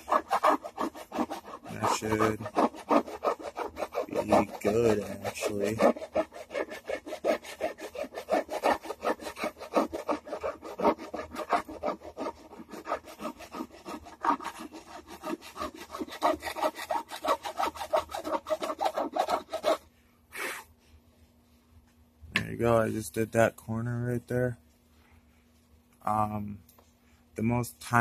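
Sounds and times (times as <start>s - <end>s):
file rasping on wood: 0.0s - 19.8s.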